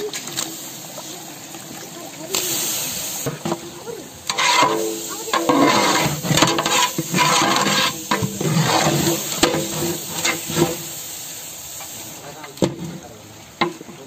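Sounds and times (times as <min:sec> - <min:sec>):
food sizzling: 0:00.0 - 0:14.0
ladle scraping a metal pot: 0:04.2 - 0:10.9.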